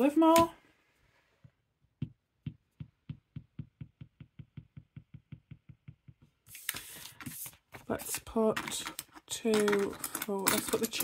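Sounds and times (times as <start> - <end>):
fingers tapping on a desk: 2.0 - 6.3.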